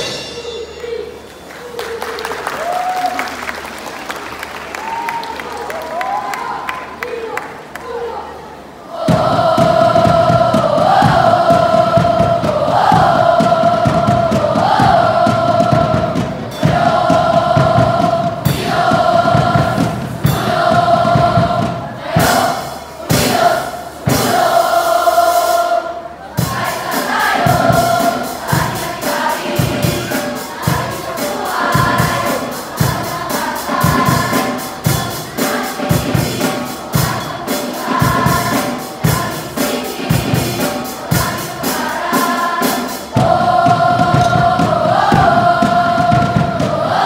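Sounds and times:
group singing and chanting: 8.6 - 47.0
music with steady beat: 26.4 - 47.0.

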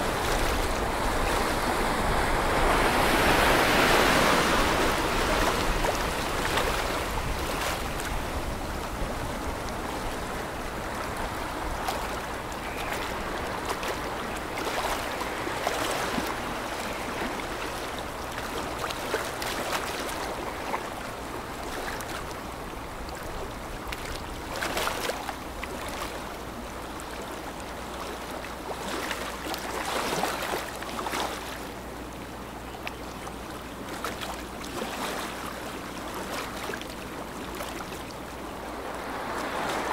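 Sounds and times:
rushing splashing water: 0.0 - 39.9.

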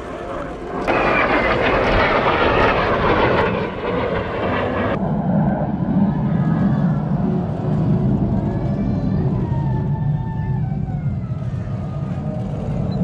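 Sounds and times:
low rumble: 0.0 - 8.8
jet roar: 0.0 - 13.0.

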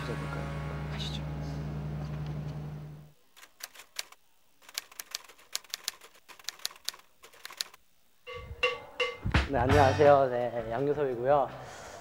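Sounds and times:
typewriter key clicks: 3.4 - 7.8.

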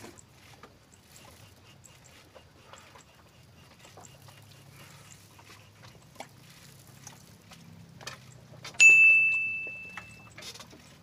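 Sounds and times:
bell ding: 8.8 - 10.3.

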